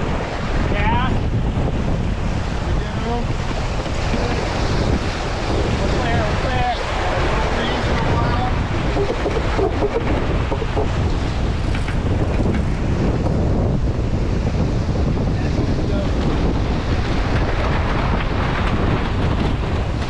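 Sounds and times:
water rushing along a hull: 0.0s - 20.0s
wind buffeting the microphone: 0.0s - 20.0s.

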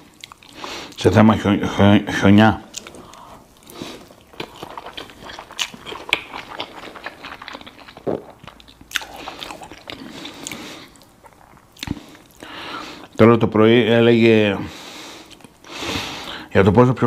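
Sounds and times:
person chewing: 0.0s - 1.0s, 2.7s - 13.2s, 15.2s - 15.6s.

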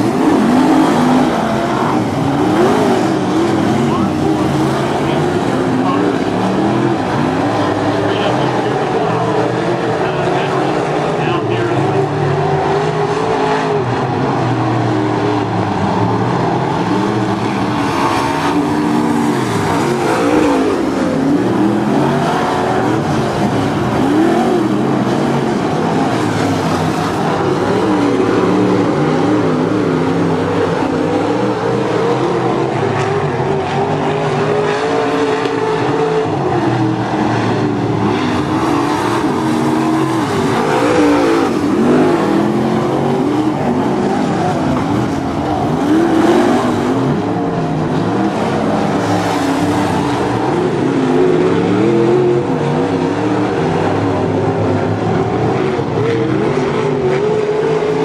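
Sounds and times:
race car engines: 0.0s - 58.0s.

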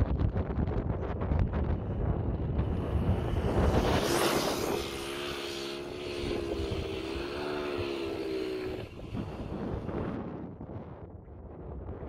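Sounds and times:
small motorbike engine buzzing: 1.6s - 10.4s.

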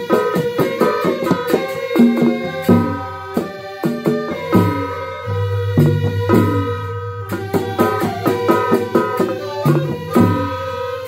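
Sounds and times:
bamboo flutes playing: 0.0s - 11.0s
drum strokes: 0.0s - 11.0s
steady deep low tone: 5.2s - 7.8s.

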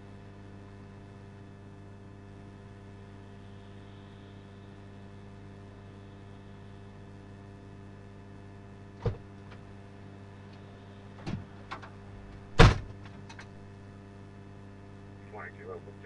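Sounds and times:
electrical hum: 0.0s - 16.0s
heavy thump: 9.0s - 9.3s, 12.6s - 13.0s.

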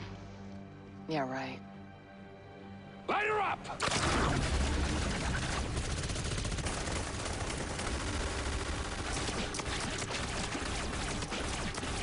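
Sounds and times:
rapid gunfire volley: 3.8s - 12.0s.

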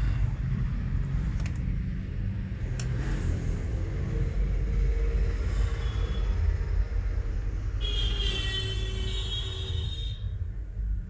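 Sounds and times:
low background rumble: 0.0s - 8.1s.

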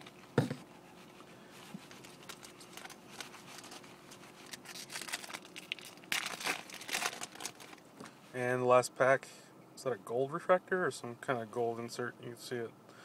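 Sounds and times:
wrapper crinkling and tearing: 1.8s - 7.9s.

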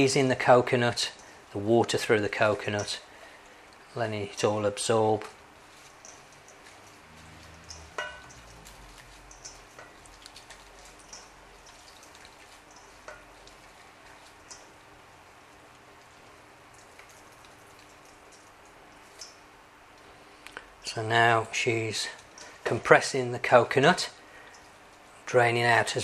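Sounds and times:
hands squeezing wet coconut: 5.2s - 20.8s.

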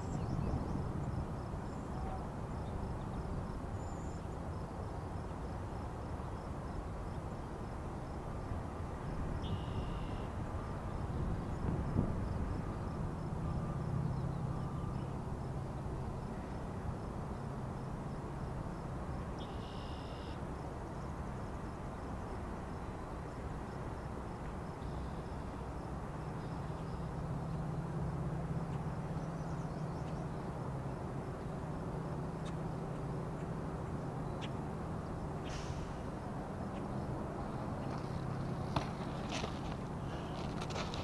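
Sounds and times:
insect chirping faintly: 0.0s - 41.0s.

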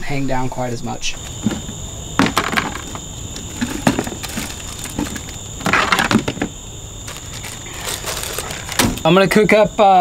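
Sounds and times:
high insect trill: 0.0s - 10.0s
items clattering in plastic bin: 1.3s - 9.1s
plastic bag crinkling: 2.2s - 9.0s.

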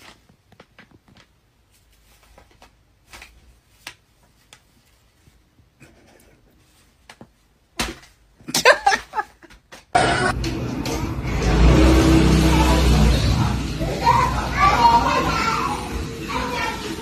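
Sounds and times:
rustling of bedding: 0.0s - 5.8s
loud wavering voice sound: 10.0s - 10.4s, 11.2s - 17.0s.

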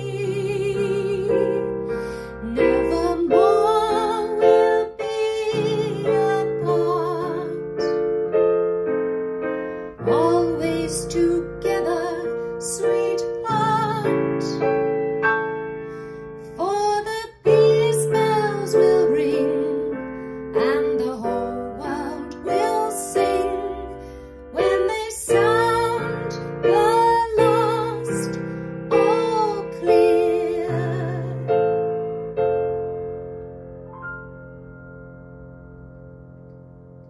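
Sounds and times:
digital piano: 0.0s - 37.0s
woman singing with vibrato: 2.4s - 7.9s, 10.1s - 14.6s, 16.6s - 23.9s, 24.6s - 31.6s.

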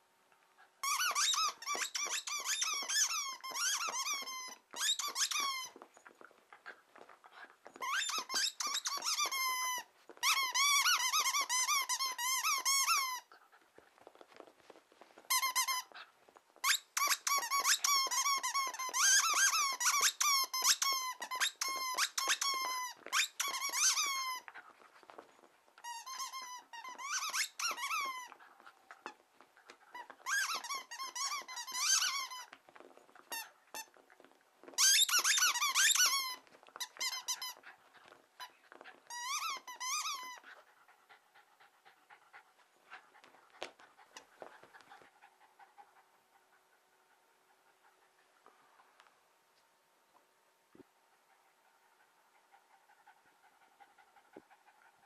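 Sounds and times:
dog chewing toy: 0.4s - 48.3s
squeaky toy squeaking: 0.8s - 6.1s, 7.7s - 13.3s, 15.3s - 24.6s, 25.8s - 28.4s, 29.0s - 34.0s, 34.6s - 40.6s.

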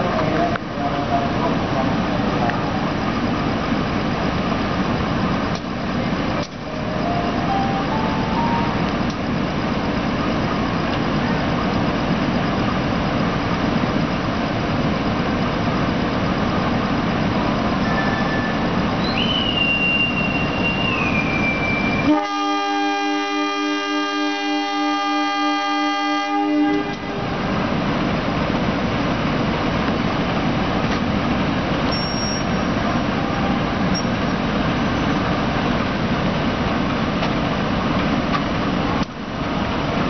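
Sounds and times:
locomotive engine and train rumble: 0.0s - 40.0s
locomotive horn blast: 22.0s - 27.5s.

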